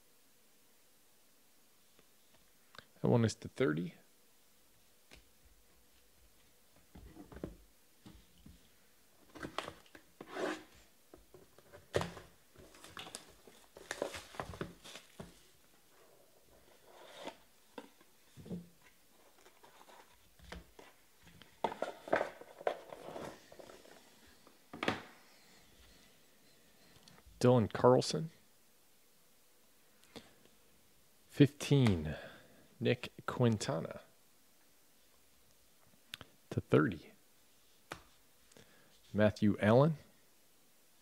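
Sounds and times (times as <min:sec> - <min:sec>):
plastic card sleeves rustling: 0:12.6 - 0:15.4.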